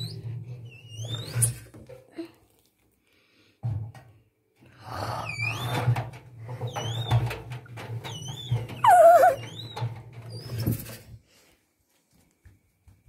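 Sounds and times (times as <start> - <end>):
high-pitched squeaks: 8.1 - 9.8.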